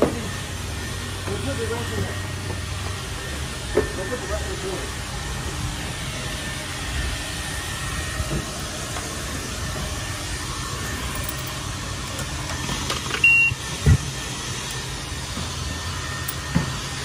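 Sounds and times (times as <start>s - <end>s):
high-pressure pump hissing: 0.0s - 17.0s
short electronic beep: 13.2s - 13.6s.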